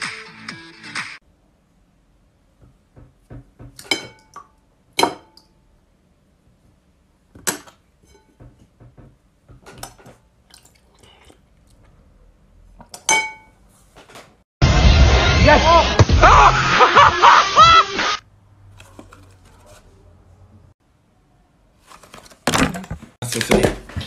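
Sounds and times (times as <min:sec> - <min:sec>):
metal spoon clinking on glass bowl: 0:13.1 - 0:13.5.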